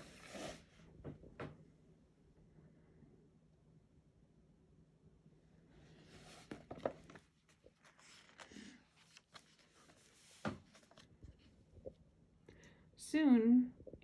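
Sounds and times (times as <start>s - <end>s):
book pages turning: 5.8s - 11.6s.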